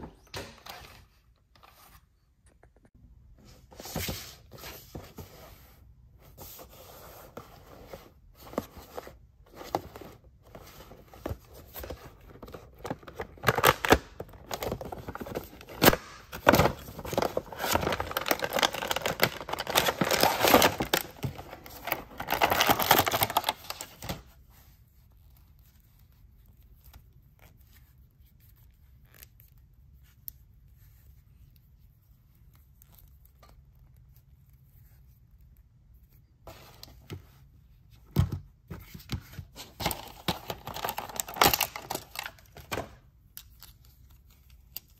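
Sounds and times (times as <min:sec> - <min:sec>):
cardboard and plastic rustling: 0:06.3 - 0:24.4, 0:36.4 - 0:43.0.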